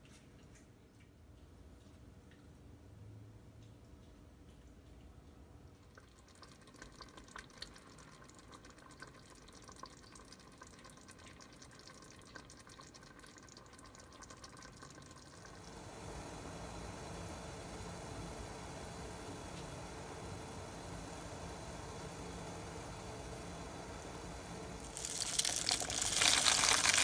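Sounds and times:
water ticking and popping: 0:03.5 - 0:15.8, 0:21.1 - 0:27.0
heating water hiss: 0:15.4 - 0:27.0.

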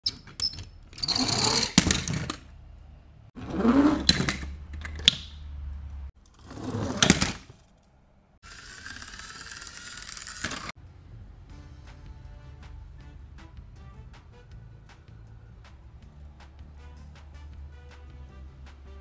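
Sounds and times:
metal toy cars clattering: 0:00.0 - 0:02.6, 0:03.4 - 0:05.4, 0:06.2 - 0:07.9, 0:08.5 - 0:10.8.

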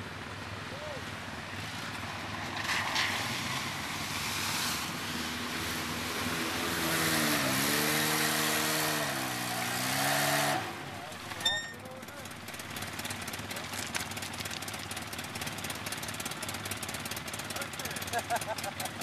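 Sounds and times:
quad bike engine revving: 0:04.9 - 0:19.0.

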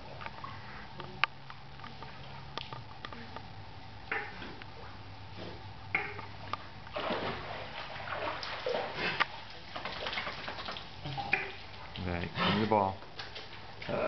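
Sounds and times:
pool water splashing: 0:06.0 - 0:14.0.

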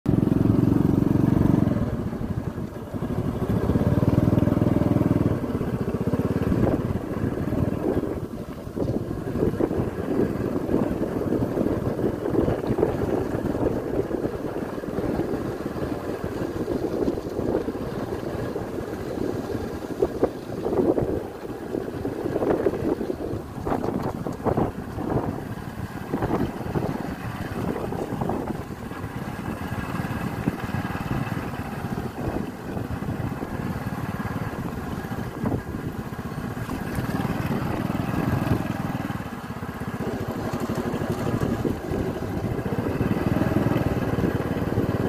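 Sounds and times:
motorcycle engine running: 0:00.1 - 0:45.0.

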